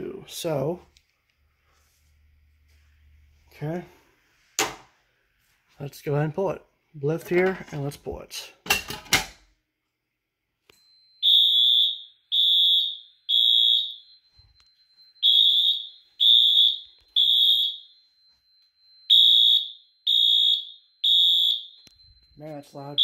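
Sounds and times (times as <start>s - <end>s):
fire alarm beeping: 10.6s - 23.0s.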